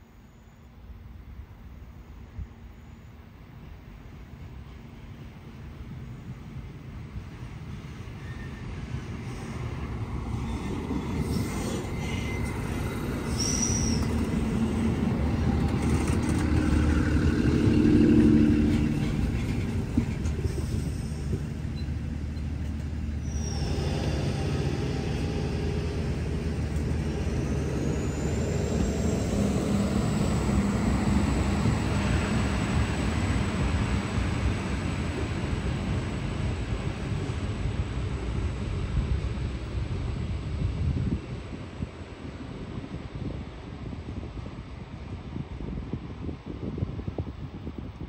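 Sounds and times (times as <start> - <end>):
diesel train rumble: 3.8 - 46.8
high squeal: 10.4 - 14.3, 23.1 - 29.6.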